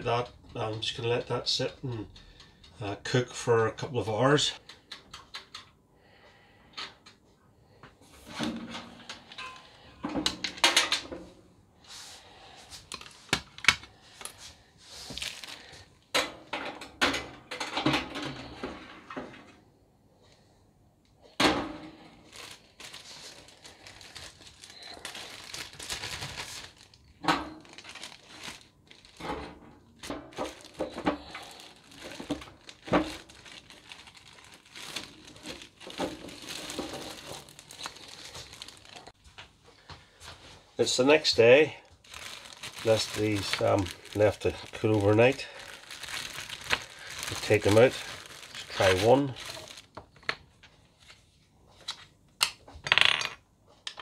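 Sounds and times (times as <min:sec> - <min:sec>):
plastic bag crinkling: 0:12.8 - 0:16.0, 0:21.9 - 0:39.2, 0:40.9 - 0:51.1.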